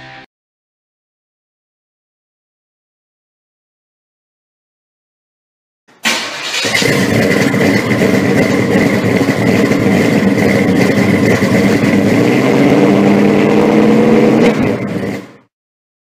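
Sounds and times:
loud engine rumbling: 5.9 - 15.5.

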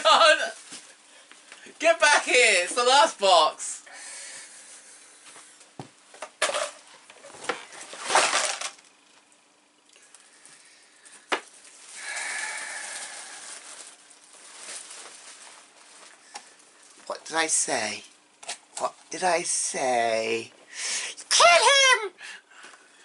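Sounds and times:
packaging rustling: 11.0 - 17.1.

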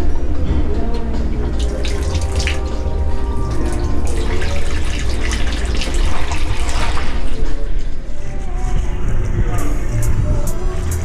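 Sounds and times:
steady low hum: 0.0 - 11.0
water running and splashing: 1.6 - 7.4.

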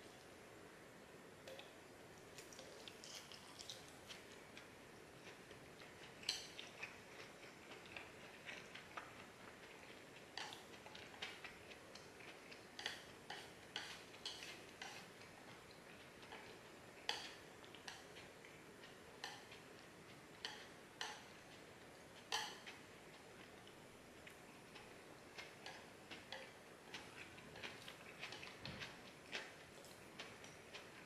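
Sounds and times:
chopsticks clicking on a plate: 10.4 - 15.0, 16.2 - 19.6, 20.4 - 21.3, 22.2 - 22.8.

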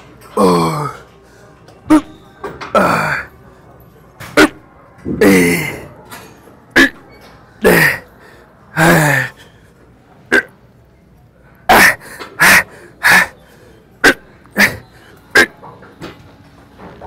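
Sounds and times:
man exhaling and grunting: 2.8 - 3.3, 4.4 - 5.9, 7.6 - 8.1, 8.8 - 9.4, 11.7 - 13.3, 14.0 - 14.8.

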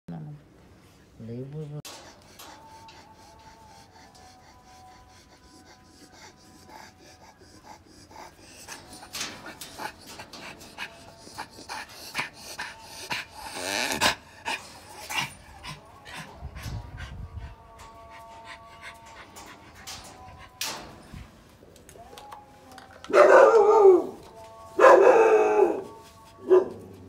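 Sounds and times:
dog panting: 1.9 - 21.1.

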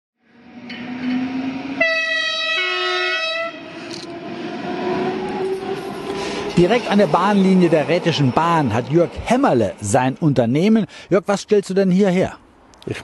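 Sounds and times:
train rumbling on track: 0.2 - 11.6
locomotive horn: 0.3 - 3.8.

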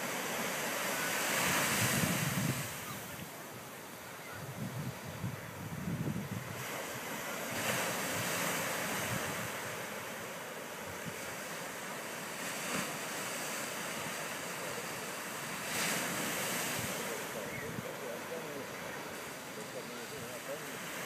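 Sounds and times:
ocean surf on beach: 0.0 - 21.0
wind on microphone: 1.1 - 10.0, 15.5 - 19.2.

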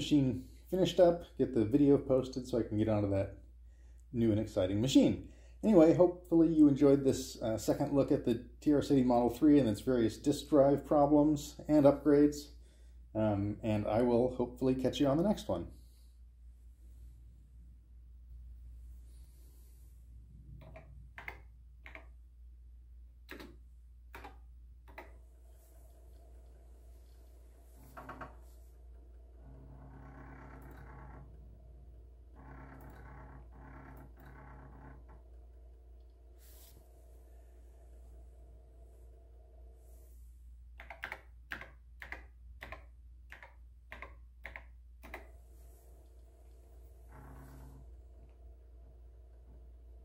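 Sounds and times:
steady low hum: 0.0 - 40.8
keyboard keystroke clicks: 20.6 - 22.1, 23.3 - 25.1, 40.8 - 45.3.

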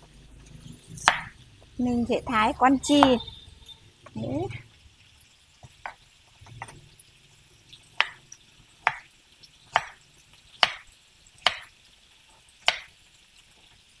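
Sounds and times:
knife chopping on wooden board: 1.0 - 1.3, 8.0 - 8.2, 8.8 - 9.1, 9.7 - 10.0, 10.6 - 11.7, 12.6 - 12.9.

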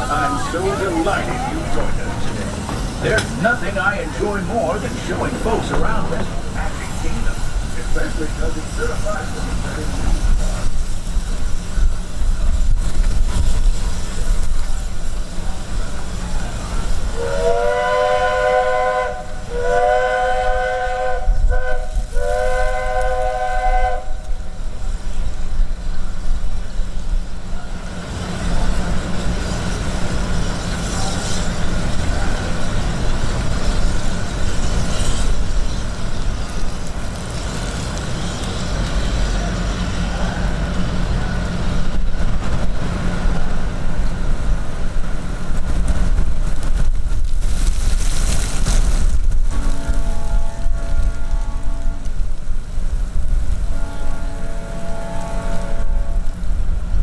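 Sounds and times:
train rumbling: 0.0 - 57.0
steam locomotive chime whistle: 17.2 - 24.2.

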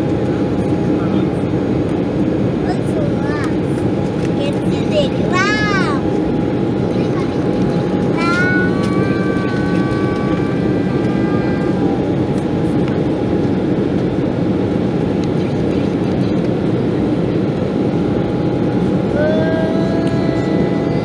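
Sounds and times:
jet engine and airflow rush: 0.0 - 21.0
faint whining tone: 7.1 - 13.0.

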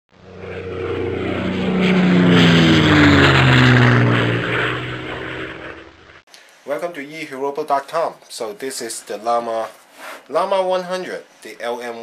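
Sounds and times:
airplane engine drone passing: 0.1 - 6.2.

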